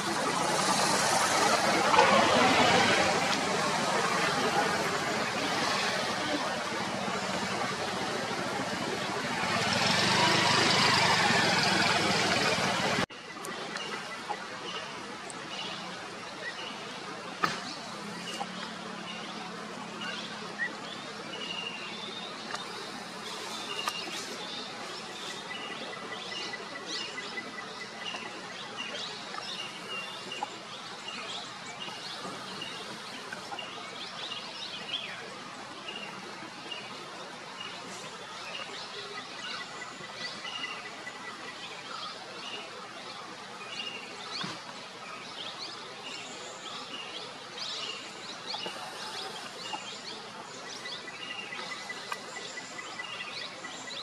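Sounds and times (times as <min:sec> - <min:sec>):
birds chirping and calling: 0:43.7 - 0:54.0.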